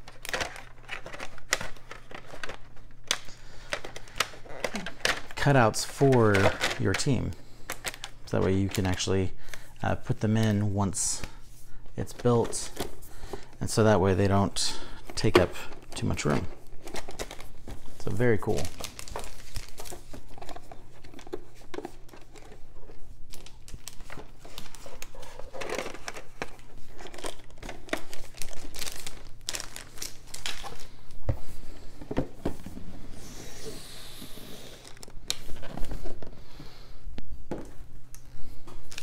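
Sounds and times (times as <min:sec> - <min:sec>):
cardboard and plastic wrap crinkling: 0:12.0 - 0:36.6.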